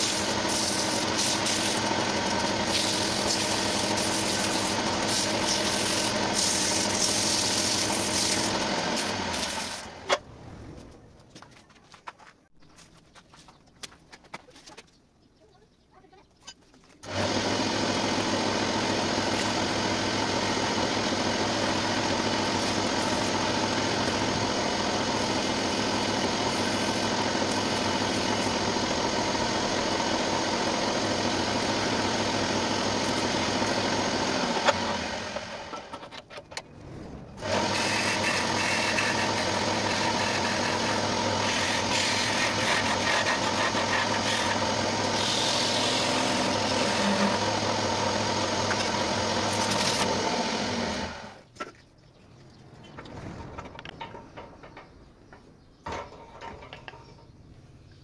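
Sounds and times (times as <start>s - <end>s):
lathe motor humming: 0.0s - 10.1s, 17.0s - 36.0s, 37.4s - 51.4s
tool scratching spinning wood: 0.0s - 10.2s, 17.0s - 36.3s, 37.4s - 51.4s.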